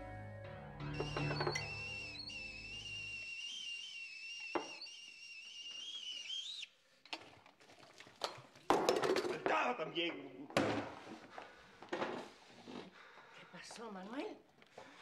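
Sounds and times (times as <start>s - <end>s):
kettle whistling: 0.8s - 6.7s.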